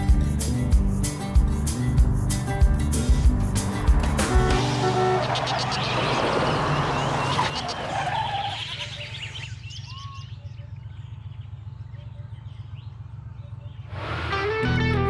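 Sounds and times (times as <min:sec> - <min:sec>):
goat bleating: 0:04.8 - 0:06.0, 0:07.4 - 0:07.8
birds chirping: 0:04.9 - 0:14.1.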